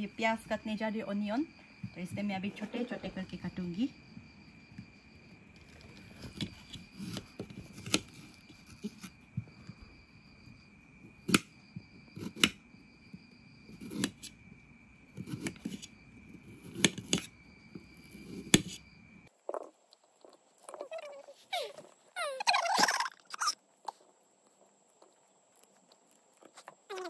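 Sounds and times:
knife slicing onion: 0:05.6 - 0:09.2, 0:11.2 - 0:12.6, 0:13.6 - 0:14.3, 0:15.2 - 0:17.3, 0:17.9 - 0:18.8.

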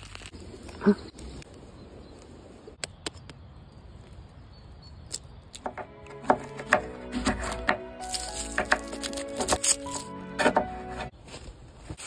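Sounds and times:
music: 0:05.7 - 0:11.1.

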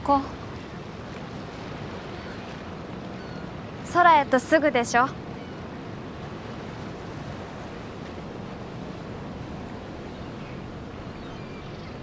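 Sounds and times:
water lapping: 0:00.0 - 0:12.0.

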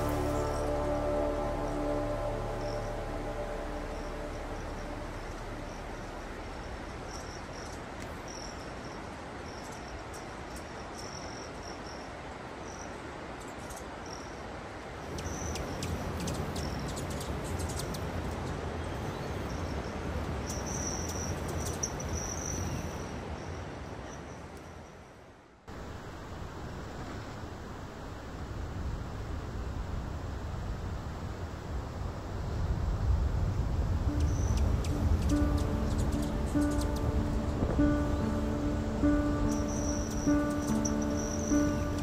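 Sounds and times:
low rumble: 0:00.0 - 0:08.3, 0:25.7 - 0:42.0
steady rushing noise: 0:00.0 - 0:10.0, 0:25.7 - 0:42.0
insects chirping: 0:00.0 - 0:14.5, 0:19.4 - 0:24.5, 0:25.7 - 0:42.0.

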